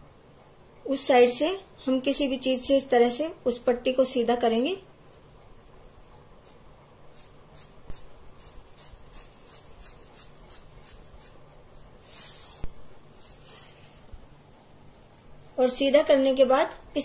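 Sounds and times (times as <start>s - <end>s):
fabric rubbing and swishing: 11.8s - 15.6s.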